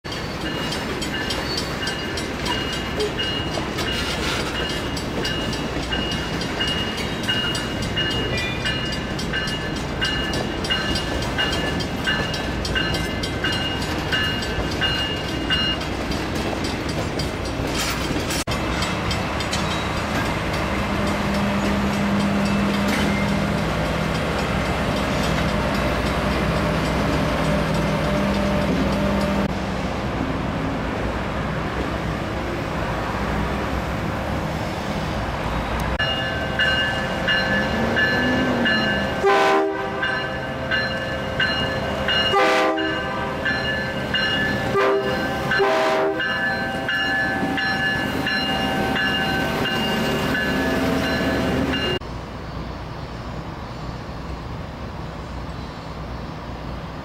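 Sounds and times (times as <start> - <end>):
locomotive bell ringing: 0.0 - 29.5, 36.0 - 52.0
diesel locomotive engine drone: 0.0 - 57.0.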